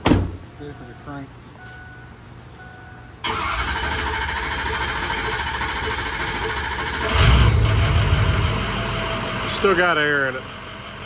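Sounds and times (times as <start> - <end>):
diesel engine cranking and starting: 3.2 - 11.0.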